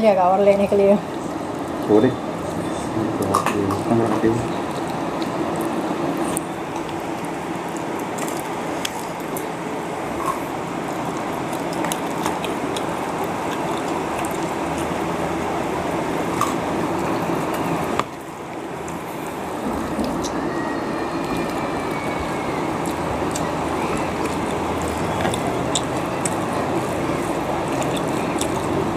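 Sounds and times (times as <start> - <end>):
steady background noise: 0.0 - 28.9
chicken being torn and chewed: 4.6 - 9.6, 10.2 - 15.6, 19.8 - 28.9.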